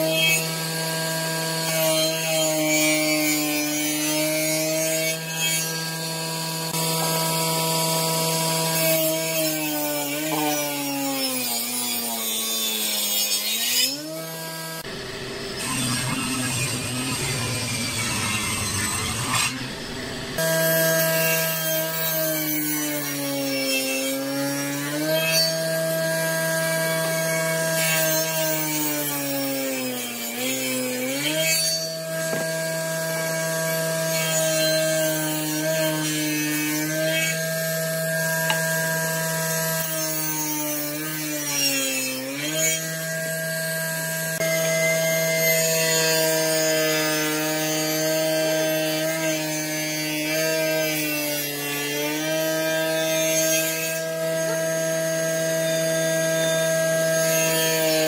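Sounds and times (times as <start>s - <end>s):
table saw cutting wood: 0.0s - 58.0s.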